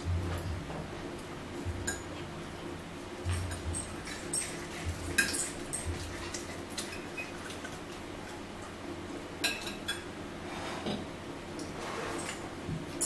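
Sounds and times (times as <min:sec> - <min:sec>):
forks clinking on plates: 0:03.3 - 0:07.6.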